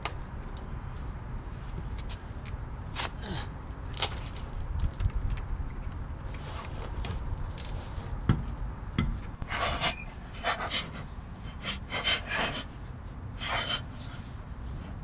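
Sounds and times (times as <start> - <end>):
person breathing hard: 9.5 - 12.8, 13.4 - 14.3.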